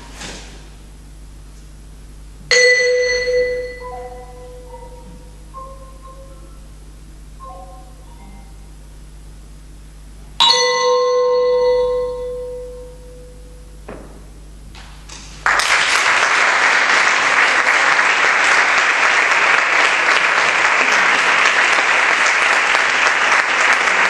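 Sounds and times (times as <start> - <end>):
vibraphone note ringing: 2.5 - 8.8, 10.4 - 13.9
audience applause: 15.4 - 24.0.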